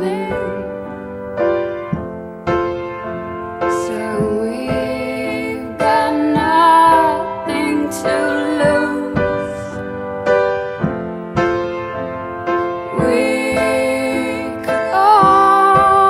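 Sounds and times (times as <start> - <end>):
woman singing: 0.0 - 1.0, 3.7 - 9.9, 12.9 - 16.0
sustained piano chords: 0.0 - 16.0.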